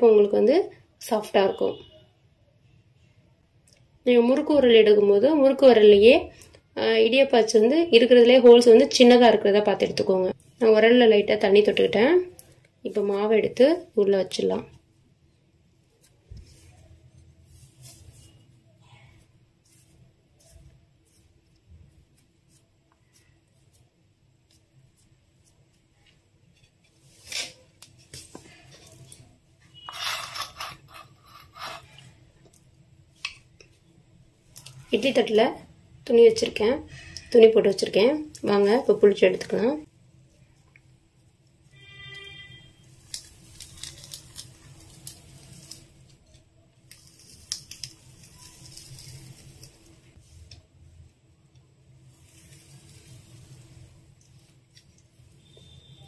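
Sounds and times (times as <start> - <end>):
dough squishing rustle: 8.0 - 29.9, 36.3 - 56.0
cloth rustling and scraping: 15.8 - 32.2, 52.0 - 56.0.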